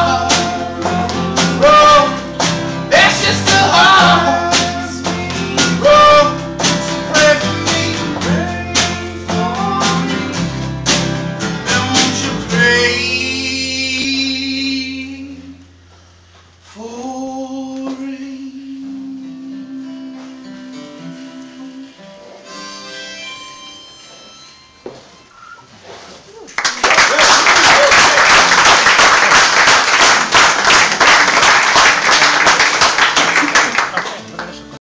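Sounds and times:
person singing: 0.0s - 10.6s, 11.6s - 15.6s, 16.8s - 22.4s
strummed acoustic guitar: 0.0s - 15.5s, 17.9s - 25.3s
harmonica chord: 19.3s - 25.6s
steel guitar slide: 21.1s - 26.1s.

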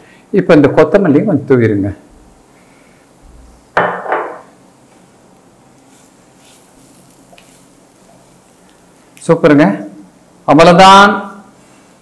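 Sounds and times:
knock in kitchen pan: 3.8s - 4.5s
spatula scraping nonstick pan: 5.9s - 8.3s.

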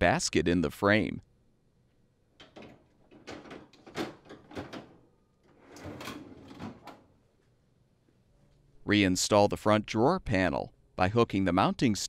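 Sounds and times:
basket frame sliding on rails: 4.3s - 7.0s.

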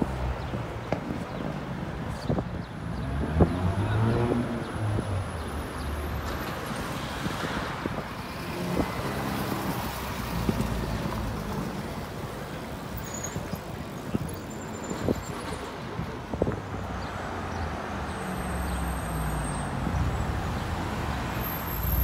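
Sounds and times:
cars driving past: 2.8s - 13.0s.

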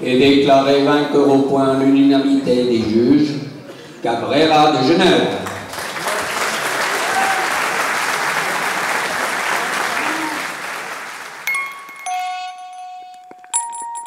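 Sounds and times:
audience applauding: 5.4s - 12.1s
chiming music notes: 11.5s - 14.0s.

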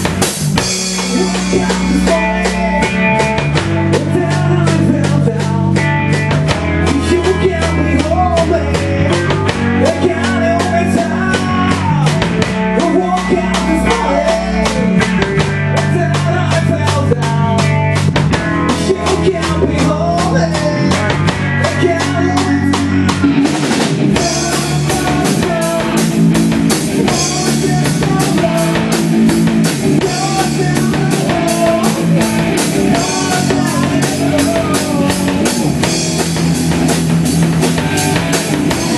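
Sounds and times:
drum kit beat: 0.0s - 38.9s
electric guitars: 0.0s - 38.9s.

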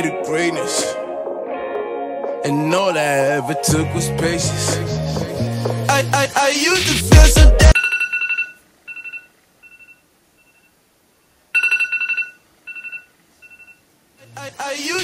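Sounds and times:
backing music: 0.0s - 7.8s
electronic ringtone tone with echo: 7.8s - 10.7s, 11.6s - 13.8s.

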